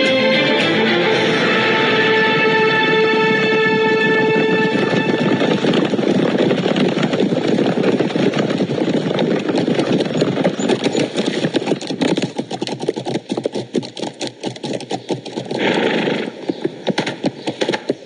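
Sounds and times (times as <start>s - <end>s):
hoofbeats on grass: 0.0s - 18.0s
dense rumbling noise: 0.8s - 10.6s.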